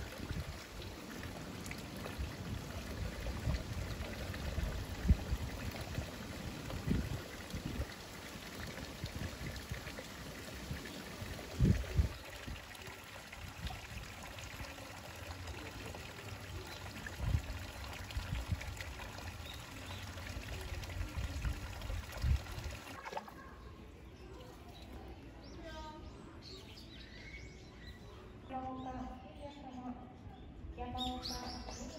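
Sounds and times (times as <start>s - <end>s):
water pouring into pool: 0.0s - 23.7s.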